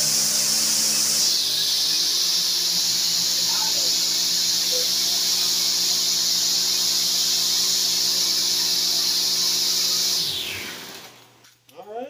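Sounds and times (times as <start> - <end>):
trimmer engine idling: 0.0 - 11.3.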